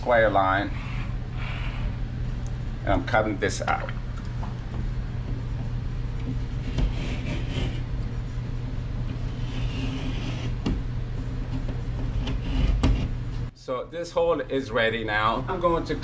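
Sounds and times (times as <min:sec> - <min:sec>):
steady low hum: 0:00.0 - 0:16.0
knife rasping through drywall: 0:06.6 - 0:07.8, 0:09.2 - 0:10.6, 0:12.0 - 0:13.1.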